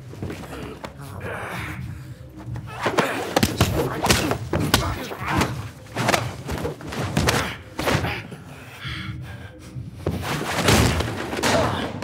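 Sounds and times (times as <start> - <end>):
punches: 2.6 - 8.3, 10.1 - 12.0
bodies slamming into walls: 10.4 - 12.0.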